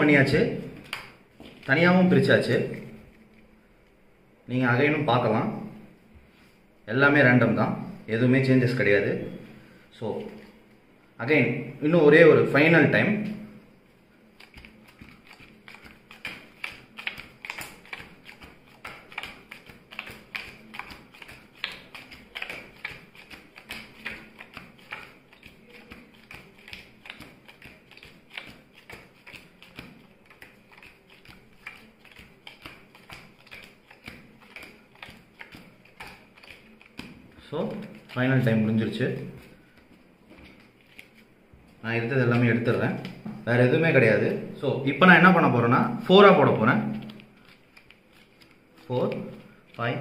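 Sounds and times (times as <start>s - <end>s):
playing cards tapping on cloth: 14.4s - 38.2s.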